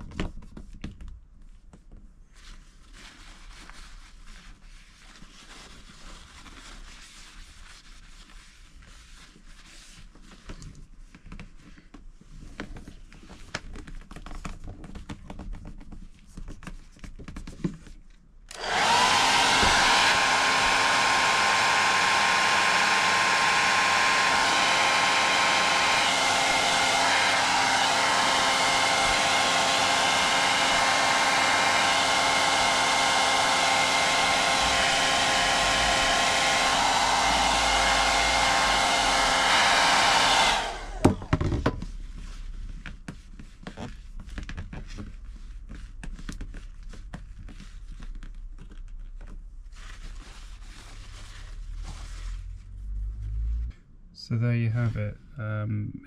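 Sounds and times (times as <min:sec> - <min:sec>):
hair dryer whining: 0:18.5 - 0:41.8.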